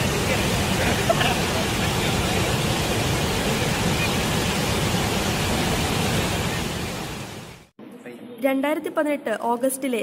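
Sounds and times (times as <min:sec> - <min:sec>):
waterfall rushing: 0:00.0 - 0:07.7.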